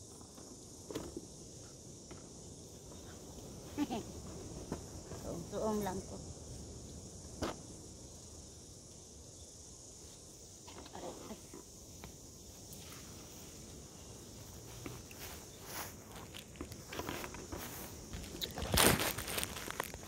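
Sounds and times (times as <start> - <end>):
crickets chirping: 0.0 - 20.0
leaves and twigs rustling: 2.6 - 20.0.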